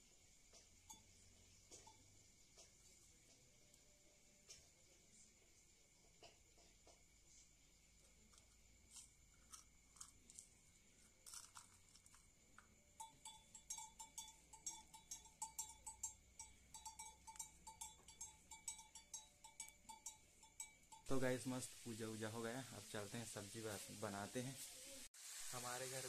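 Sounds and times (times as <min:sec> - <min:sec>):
small hand bell ringing: 0:00.8 - 0:02.3, 0:12.9 - 0:21.6.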